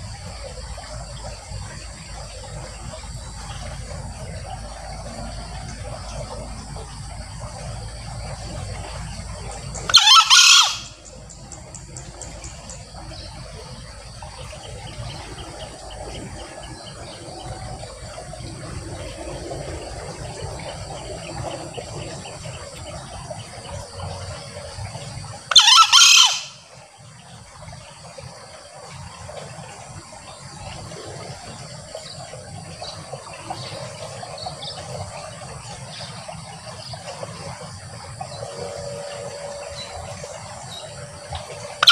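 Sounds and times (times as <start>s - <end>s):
junglefowl crowing: 9.9s - 11.0s, 25.5s - 26.6s.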